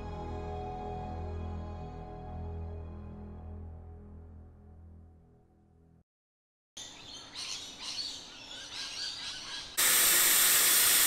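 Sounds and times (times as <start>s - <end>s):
birds chirping: 6.8s - 9.8s
air hissing from tyre: 9.8s - 11.0s.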